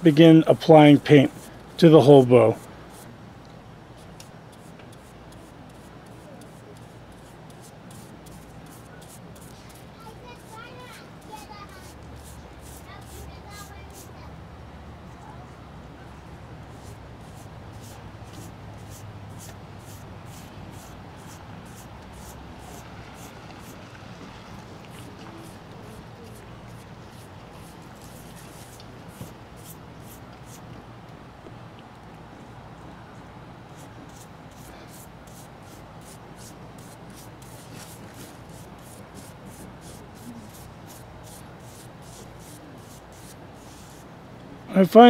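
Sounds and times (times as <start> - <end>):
steady low hum: 0.0 - 44.7
paintbrush swishing: 4.5 - 14.1, 16.7 - 23.8, 24.8 - 30.6, 33.8 - 44.0.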